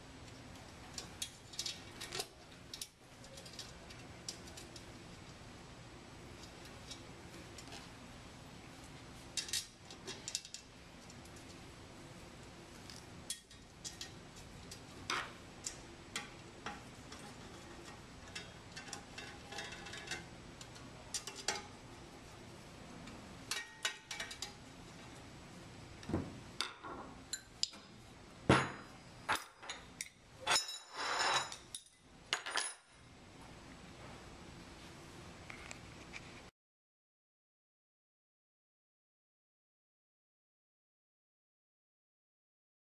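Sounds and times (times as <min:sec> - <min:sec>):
metal tools clinking on metal: 0:28.6 - 0:32.9.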